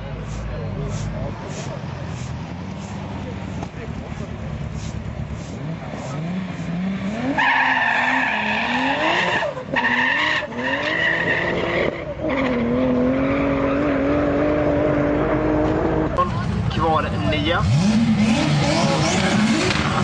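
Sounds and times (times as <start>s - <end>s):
car engine revving: 0.8s - 20.0s
tyres squealing: 7.2s - 14.0s.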